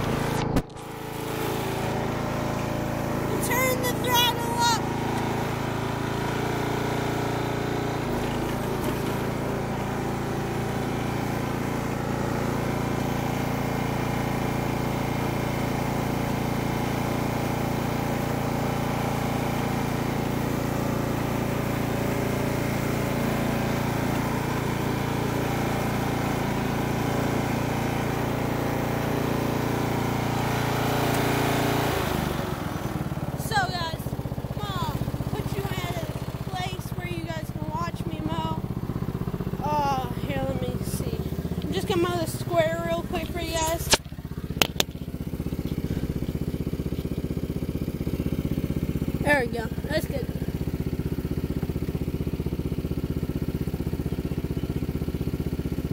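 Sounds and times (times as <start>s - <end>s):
riding mower engine running: 0.0s - 55.9s.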